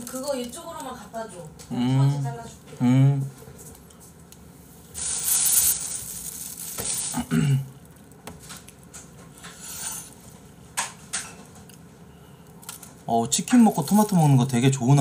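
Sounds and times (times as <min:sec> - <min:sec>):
plastic bag crinkling: 0:00.0 - 0:01.0, 0:05.0 - 0:09.0, 0:12.6 - 0:15.0.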